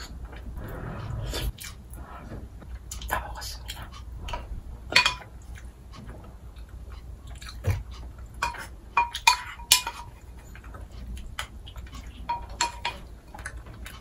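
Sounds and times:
soft chewing: 0:05.2 - 0:14.0.

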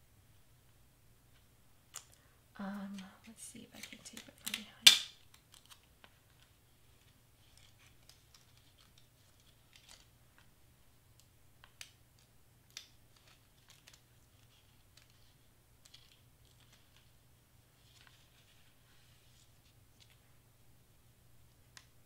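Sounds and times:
low steady hum: 0:00.0 - 0:22.0
paper and tape rustling: 0:02.8 - 0:10.5, 0:11.6 - 0:20.3.

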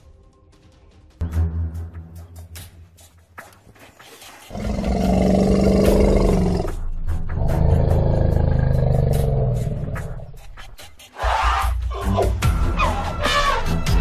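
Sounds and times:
deep animal roars: 0:04.5 - 0:06.8, 0:07.4 - 0:10.3.

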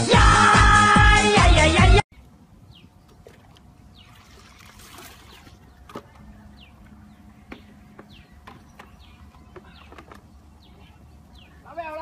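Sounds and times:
water splashing and trickling: 0:03.0 - 0:06.9.

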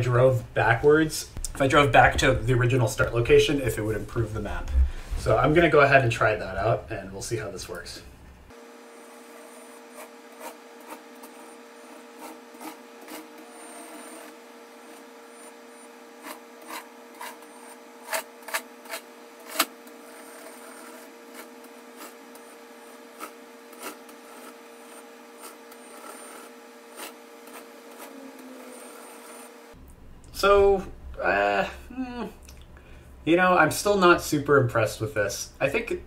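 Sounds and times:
motor whine: 0:08.5 - 0:29.8.

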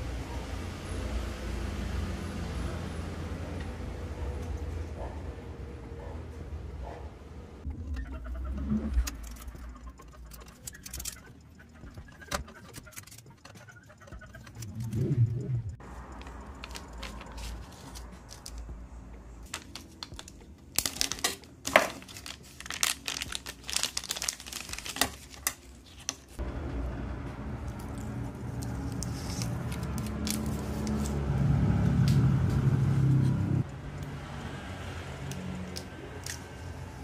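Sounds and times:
plastic bag crinkling: 0:19.5 - 0:26.0.

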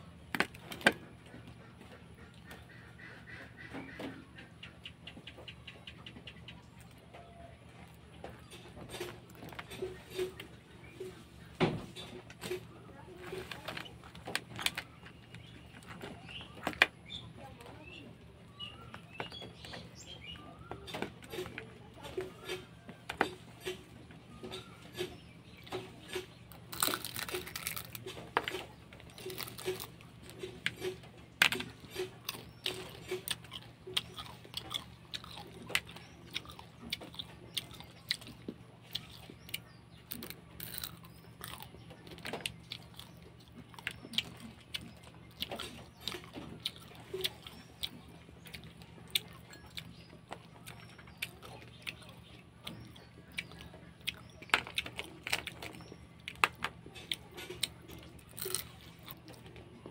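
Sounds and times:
crab shell cracking and crunching: 0:13.3 - 0:16.9, 0:25.0 - 0:59.8.

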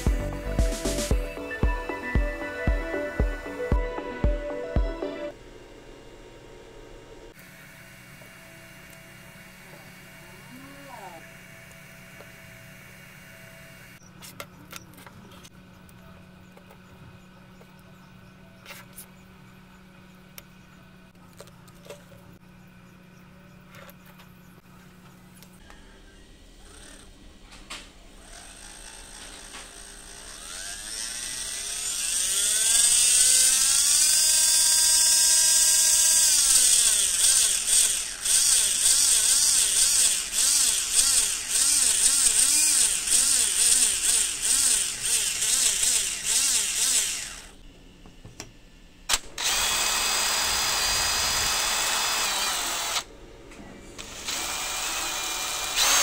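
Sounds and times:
electric motor whine: 0:00.0 - 0:14.0, 0:23.7 - 0:47.6, 0:49.1 - 0:53.3, 0:53.9 - 0:56.0
electric drill boring into plastic: 0:26.6 - 0:27.2, 0:28.2 - 0:47.6, 0:49.1 - 0:53.1, 0:54.0 - 0:56.0.

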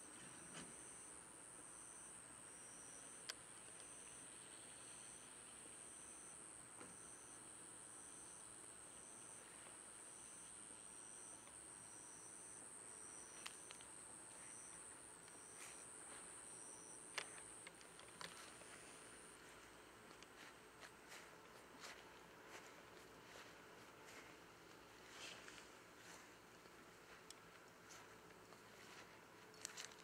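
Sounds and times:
insect chirping: 0:00.2 - 0:20.9
insect high trill: 0:00.4 - 0:20.2.

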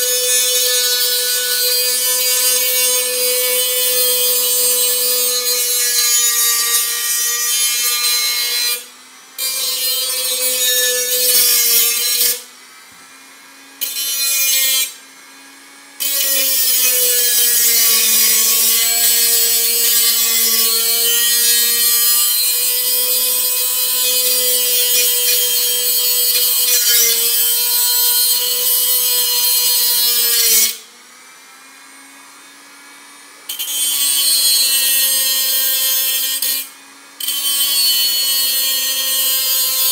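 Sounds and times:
cutting disc grinding metal: 0:00.0 - 0:31.0, 0:33.4 - 0:39.9
rotary tool motor whine: 0:00.0 - 0:31.0.

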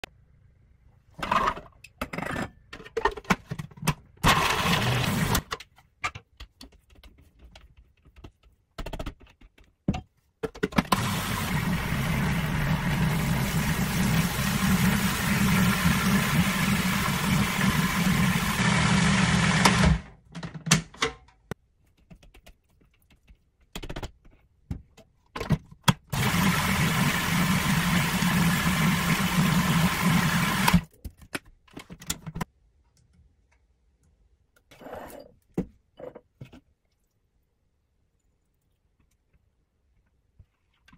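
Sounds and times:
food processor motor running: 0:04.3 - 0:05.4, 0:10.9 - 0:20.1, 0:26.1 - 0:30.8.

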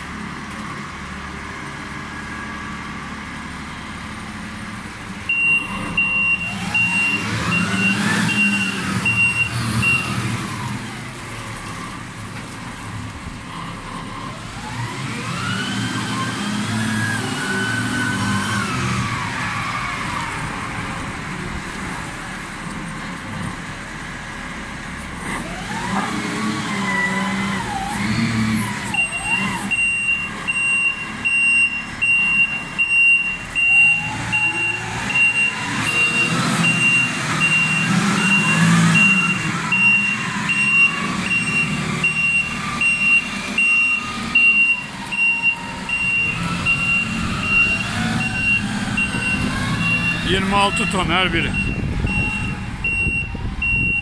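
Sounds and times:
forklift diesel engine revving: 0:00.0 - 0:12.2, 0:12.8 - 0:22.6, 0:24.4 - 0:54.0
reversing alarm beeping: 0:05.3 - 0:10.2, 0:28.9 - 0:54.0.

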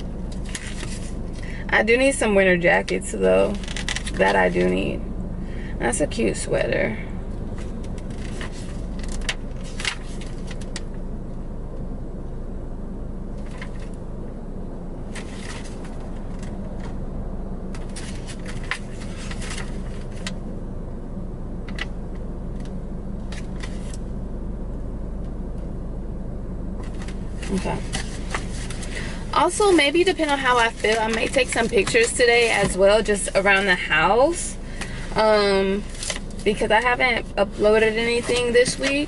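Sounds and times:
low hum in car cabin: 0:00.0 - 0:39.0
paper crinkling and clicking: 0:00.3 - 0:01.1, 0:03.6 - 0:04.7, 0:07.8 - 0:10.9, 0:17.8 - 0:20.4, 0:29.6 - 0:32.8, 0:35.9 - 0:36.6.

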